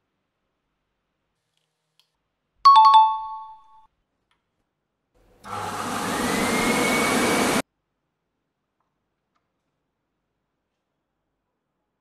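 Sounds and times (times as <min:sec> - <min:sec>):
heat gun fan blowing: 0:05.5 - 0:07.6.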